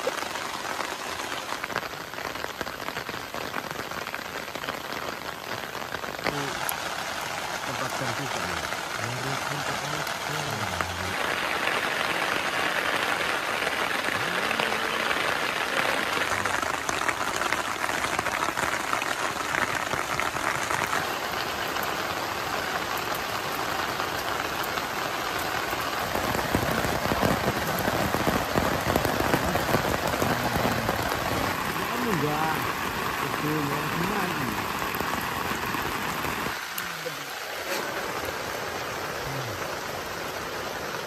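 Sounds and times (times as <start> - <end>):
heavy rain falling: 0.0 - 41.0.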